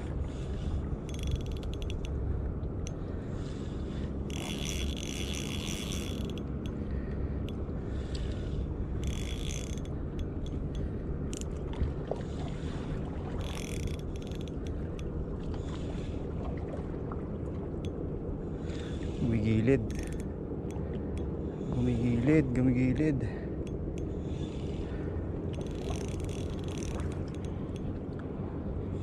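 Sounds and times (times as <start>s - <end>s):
fishing reel whirring and clicking: 1.0s - 2.2s, 4.0s - 11.6s, 13.4s - 15.1s, 19.0s - 21.4s, 23.6s - 27.9s.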